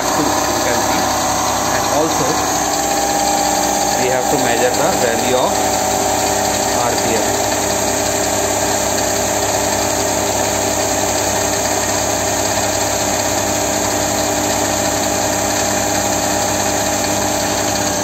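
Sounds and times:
electric motor humming and whining: 0.0s - 18.0s.

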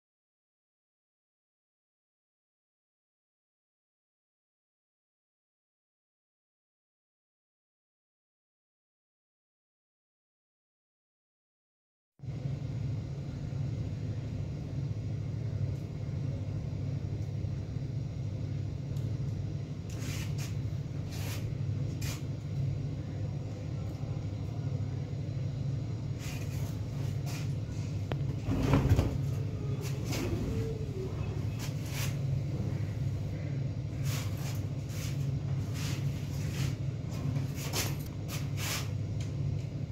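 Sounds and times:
low room hum: 12.2s - 39.9s.

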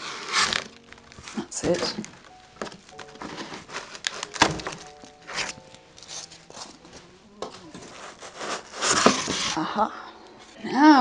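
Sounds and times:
wood knocking and thumping: 4.3s - 4.8s.

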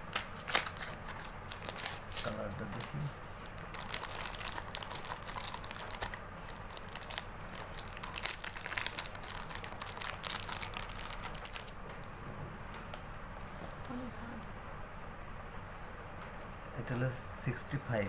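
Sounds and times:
plastic wrapping crackling: 0.0s - 12.2s.

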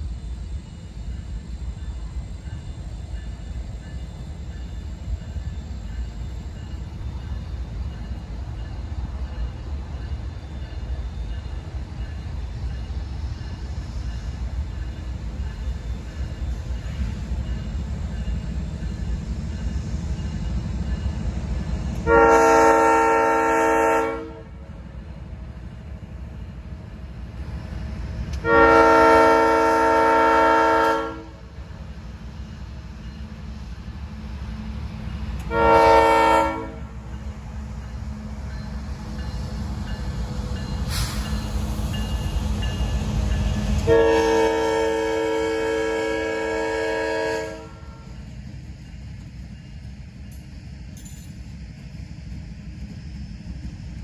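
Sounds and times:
train rumbling: 0.0s - 54.0s
locomotive air horn: 22.0s - 24.6s, 28.4s - 31.4s, 35.4s - 37.0s, 43.8s - 48.1s.

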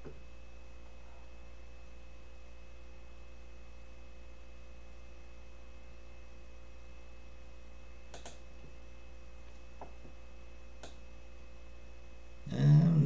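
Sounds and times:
electrical hum: 0.0s - 13.0s
faint high whine: 0.0s - 13.0s
computer mouse clicks: 8.1s - 8.4s, 10.8s - 11.0s.

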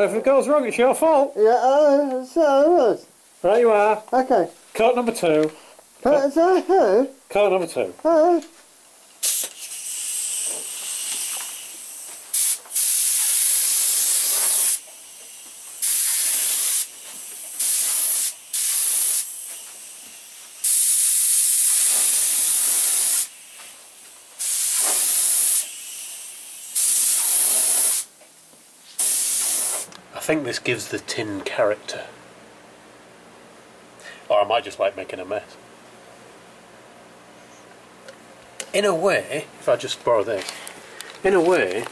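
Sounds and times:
paint spray gun hissing: 9.2s - 28.1s, 29.0s - 29.9s.

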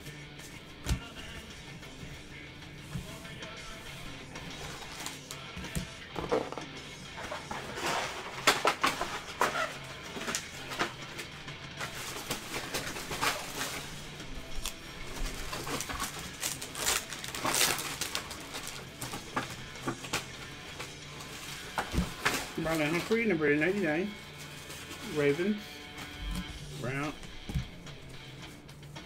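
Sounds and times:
foil wrappers crinkling: 4.5s - 5.4s, 7.2s - 27.2s.

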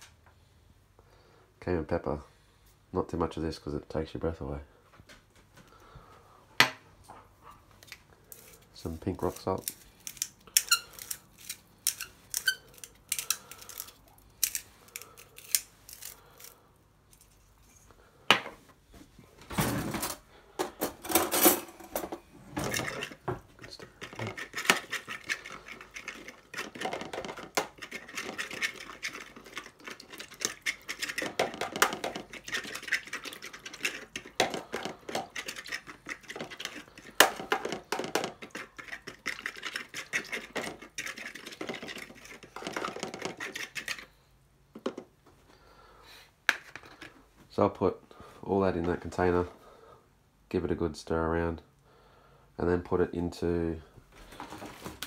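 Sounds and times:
fork stirring in plastic container: 7.8s - 16.6s, 22.6s - 44.2s.

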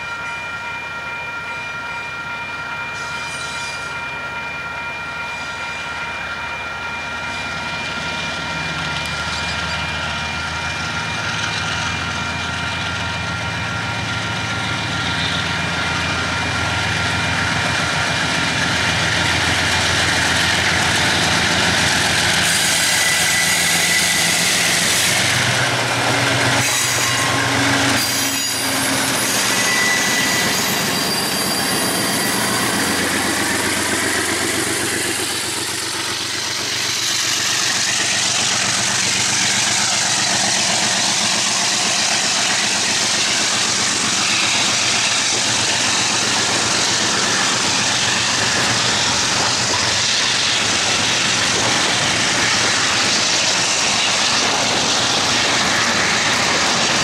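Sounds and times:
diesel locomotive engines working hard: 0.0s - 57.0s
train wagons clickety-clack: 6.8s - 57.0s
wheel squeal: 8.8s - 35.8s.

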